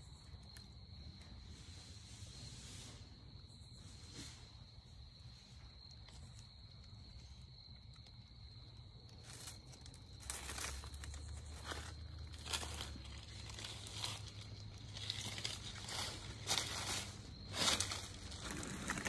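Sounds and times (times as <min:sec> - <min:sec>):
high-pitched insect chorus: 0:00.0 - 0:19.0
dry leaves rustling and crunching: 0:09.0 - 0:19.0.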